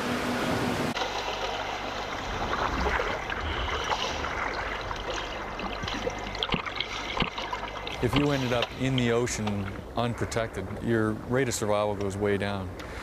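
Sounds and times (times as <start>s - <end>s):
water splashing and bubbling: 0.9s - 11.0s.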